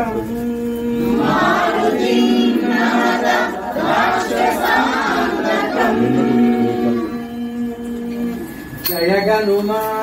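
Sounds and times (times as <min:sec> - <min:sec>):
held drone note: 0:00.0 - 0:09.0
women chanting in unison: 0:01.0 - 0:07.4.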